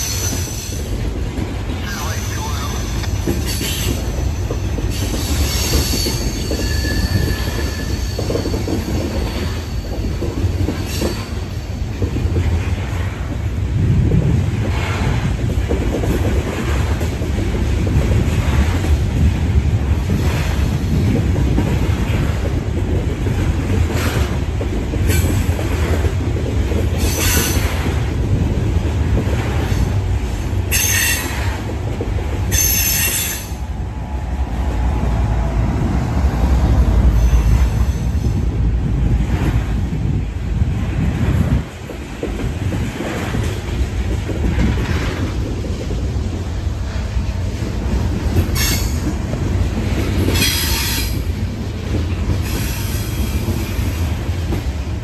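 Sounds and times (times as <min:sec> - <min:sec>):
freight train rolling past: 0:00.0 - 0:55.0
high-pitched wheel squeals: 0:05.2 - 0:08.8.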